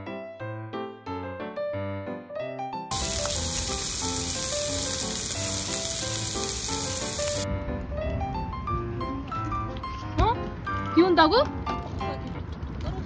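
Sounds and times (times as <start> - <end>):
light background music: 2.4 - 12.8
vegetables sizzling in a frying pan: 2.9 - 7.4.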